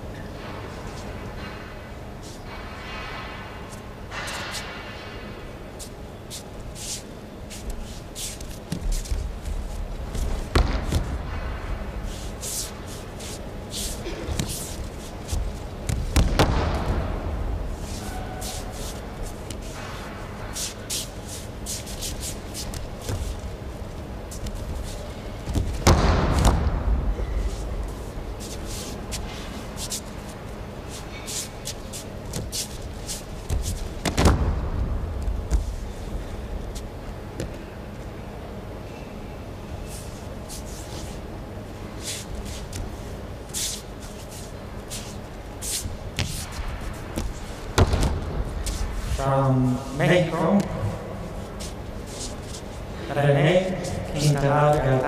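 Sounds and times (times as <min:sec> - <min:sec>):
low hall hum: 0:00.0 - 0:55.0
feet sliding on mat: 0:05.8 - 0:37.7, 0:39.8 - 0:49.2, 0:50.6 - 0:53.1
body thudding on mat: 0:25.4 - 0:26.9.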